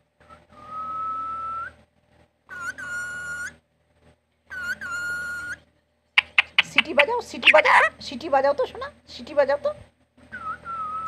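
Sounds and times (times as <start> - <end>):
parakeet whistling: 2.5 - 3.6, 4.5 - 5.6, 6.2 - 7.9.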